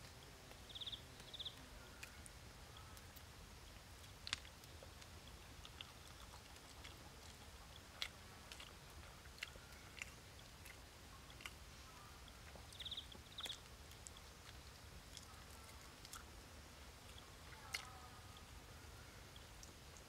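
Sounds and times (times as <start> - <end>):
small clicks of egg peeling: 0.0 - 7.4
faint chewing: 0.0 - 20.0.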